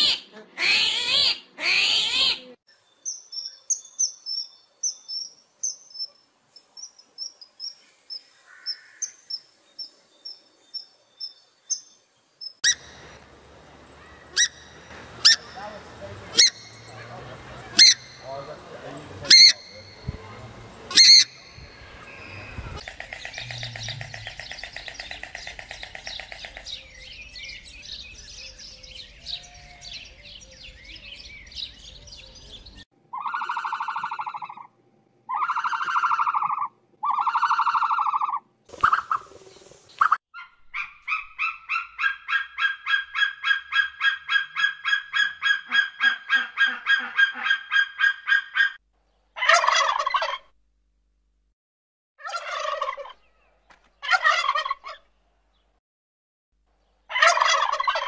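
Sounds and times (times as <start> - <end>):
birds chattering: 3.0 - 34.6
pulsed bird calls: 13.9 - 31.0
loud bird honks: 14.0 - 22.5
turkey gobbling: 15.2 - 18.3, 19.2 - 20.1, 33.1 - 34.7, 35.3 - 39.3, 40.0 - 48.8, 49.4 - 50.5, 52.2 - 53.2, 54.0 - 55.0, 57.1 - 58.0.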